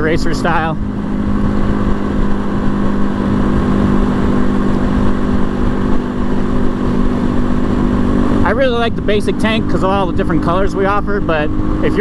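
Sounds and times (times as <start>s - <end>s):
motorcycle engine cruising: 0.0s - 12.0s
wind noise on microphone: 0.6s - 9.7s.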